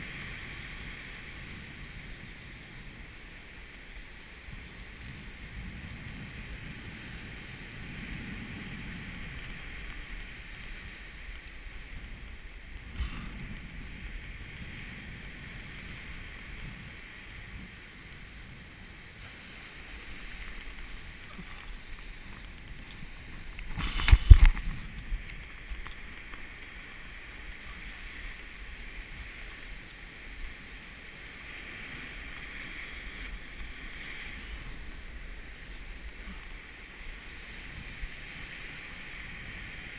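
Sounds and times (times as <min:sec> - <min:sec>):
surf breaking over rocks: 0:00.0 - 0:39.9
wind buffeting microphone: 0:04.4 - 0:30.7.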